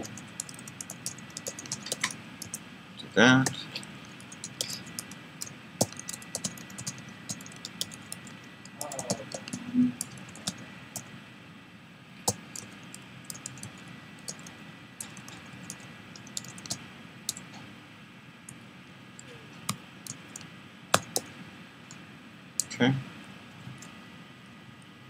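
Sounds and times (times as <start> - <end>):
keyboard typing clicks: 0.0 - 2.6, 3.4 - 10.6, 12.3 - 17.4, 19.6 - 21.3.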